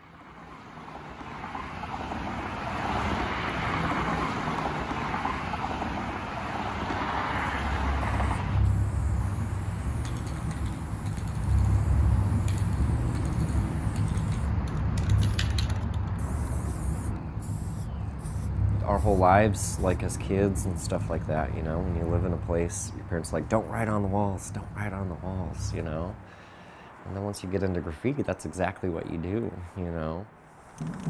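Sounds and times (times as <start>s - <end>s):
highway traffic rumble: 0.0s - 31.0s
hiss: 7.9s - 14.5s, 16.2s - 19.3s.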